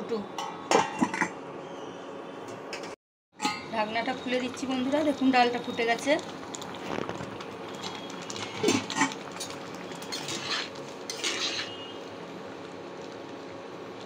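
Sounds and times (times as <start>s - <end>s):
metal spatula scraping a pan: 10.0s - 11.9s.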